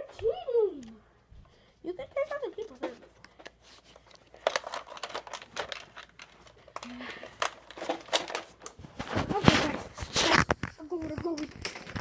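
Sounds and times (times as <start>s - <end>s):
clothing rustling against microphone: 8.4s - 12.0s
clicks and knocks: 10.3s - 12.0s.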